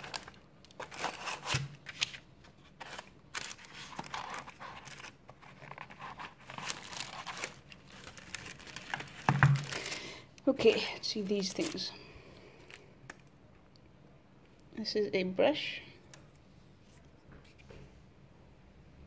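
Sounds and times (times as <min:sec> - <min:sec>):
tissue paper crinkling: 0:00.0 - 0:12.0.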